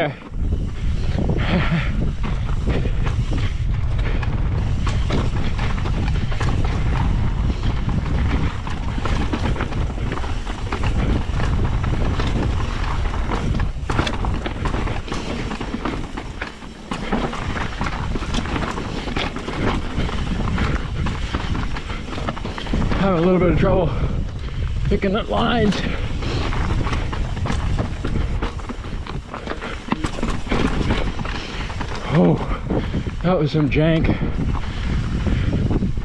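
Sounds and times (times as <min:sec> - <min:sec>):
bike clattering and rattling: 0:00.0 - 0:36.0
wind rumble on microphone: 0:00.0 - 0:36.0
tyres crunching over stones: 0:13.9 - 0:20.5, 0:26.5 - 0:32.3.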